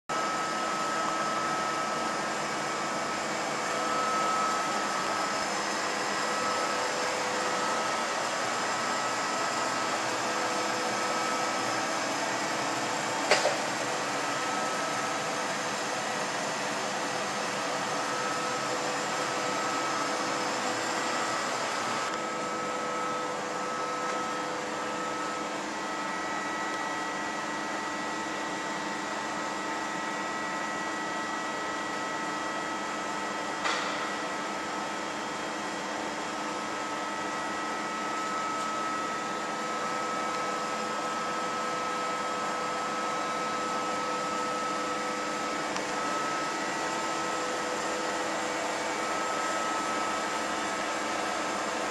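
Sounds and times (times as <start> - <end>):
lathe humming and whining: 0.1 - 51.9.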